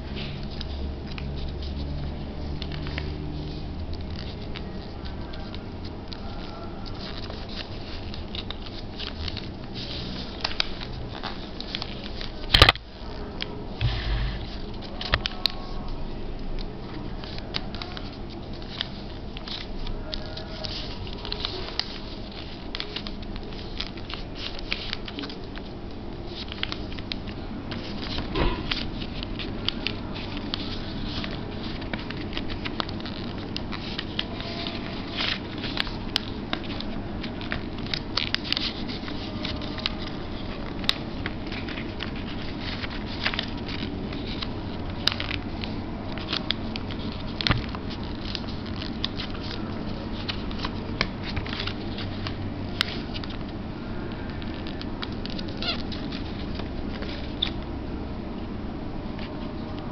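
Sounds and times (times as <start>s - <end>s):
crisp clicks of paper folds: 0.0s - 59.9s
paper rustling and crinkling: 0.0s - 59.9s
steady background noise: 0.0s - 59.9s.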